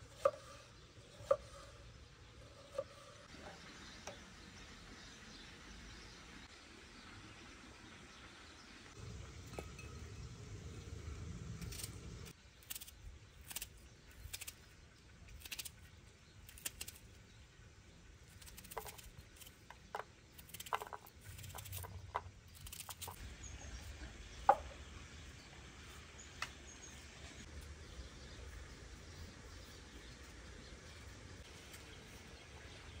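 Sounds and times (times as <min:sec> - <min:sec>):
knife cutting garlic: 0:18.3 - 0:23.2.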